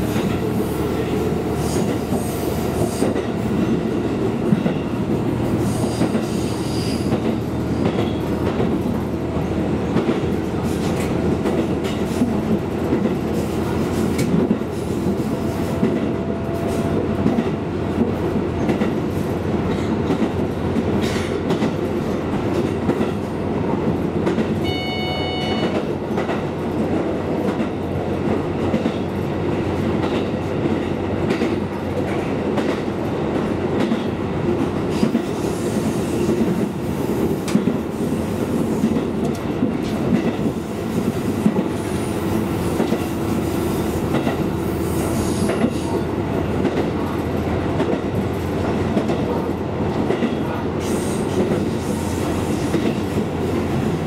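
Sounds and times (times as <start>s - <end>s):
train engine and wheels rumbling: 0.0s - 54.0s
brief high-pitched tone: 24.6s - 25.8s.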